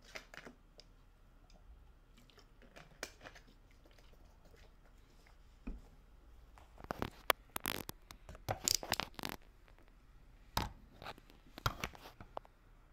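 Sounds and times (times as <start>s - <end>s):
rustling and scraping: 2.6s - 10.0s, 10.8s - 12.5s.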